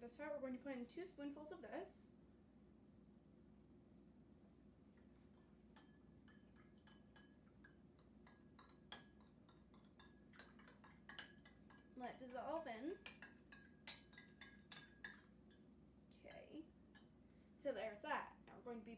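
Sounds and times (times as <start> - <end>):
spoon clinking against glass: 5.8 - 15.6.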